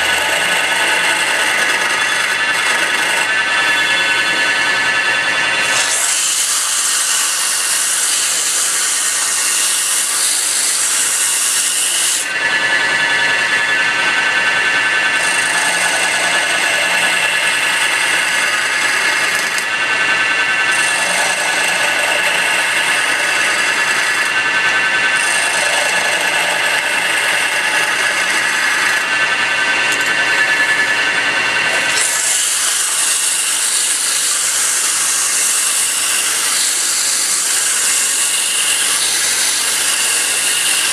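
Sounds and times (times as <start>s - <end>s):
chisel cutting spinning wood: 0.0s - 40.9s
sandpaper hissing on spinning wood: 5.6s - 12.5s, 20.7s - 24.4s, 31.8s - 40.9s.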